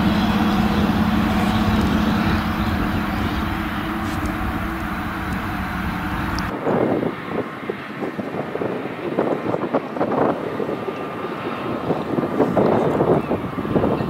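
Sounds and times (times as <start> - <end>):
harvester running: 0.0 - 6.6
steady machine hum: 0.0 - 6.6
wind buffeting microphone: 0.0 - 14.0.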